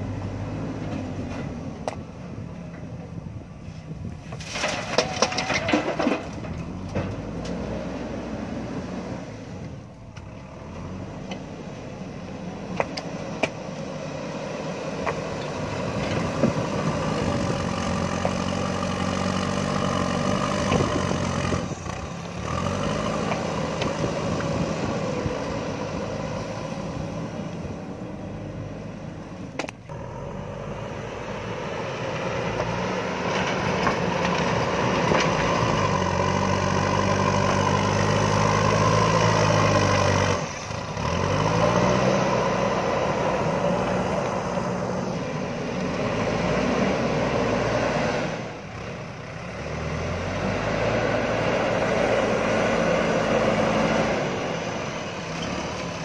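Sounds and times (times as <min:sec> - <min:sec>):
loader bucket pushing gravel: 0:03.6 - 0:09.9, 0:31.8 - 0:56.0
diesel engine working hard: 0:05.0 - 0:56.0.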